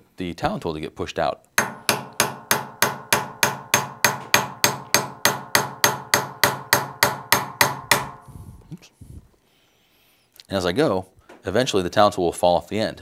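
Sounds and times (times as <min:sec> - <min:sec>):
hammer tapping metal punch: 0:01.6 - 0:08.3.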